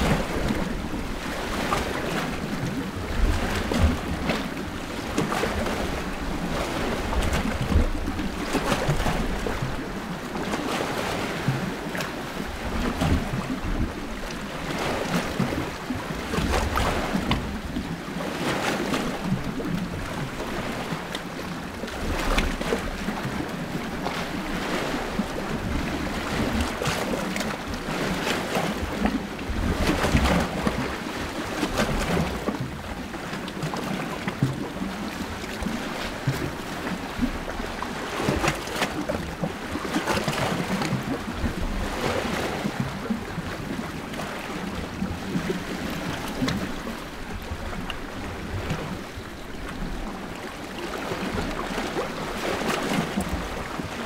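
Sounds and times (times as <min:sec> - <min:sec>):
waves lapping at shore: 0:00.0 - 0:54.0
wind rumble on microphone: 0:00.0 - 0:54.0.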